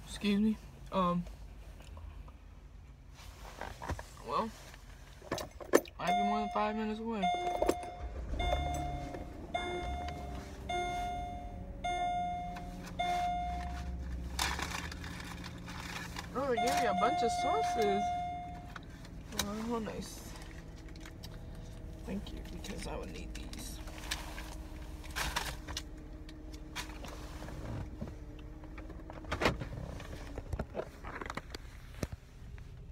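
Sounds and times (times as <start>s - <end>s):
car electronic warning chime: 6.0s - 14.2s, 16.3s - 20.1s.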